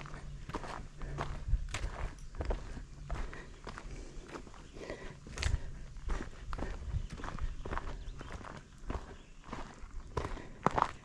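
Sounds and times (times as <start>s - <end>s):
footsteps on sandy dirt trail: 0.0s - 11.0s.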